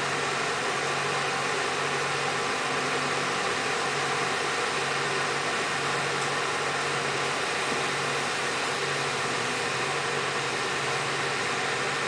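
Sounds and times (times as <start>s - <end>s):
machinery droning: 0.0s - 12.0s.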